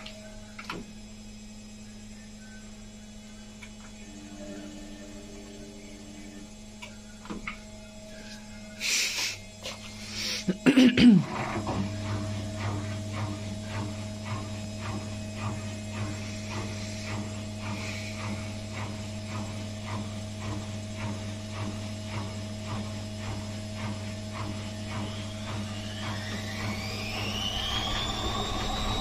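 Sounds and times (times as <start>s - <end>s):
washing machine drum whine: 0.0s - 29.0s
washing machine motor hum: 0.0s - 29.0s
washing machine ticking: 10.7s - 29.0s.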